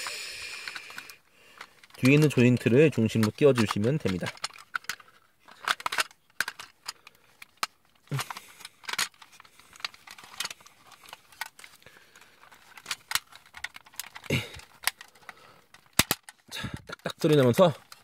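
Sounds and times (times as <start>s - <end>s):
plastic toy parts clicking: 0.5s - 18.0s.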